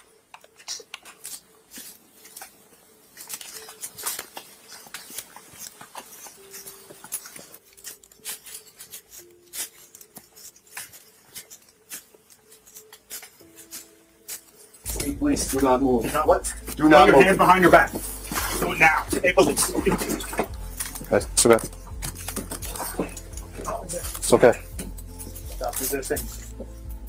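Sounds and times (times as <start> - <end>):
clothing and gear rustling: 0.0 - 27.0
footsteps: 0.0 - 27.0.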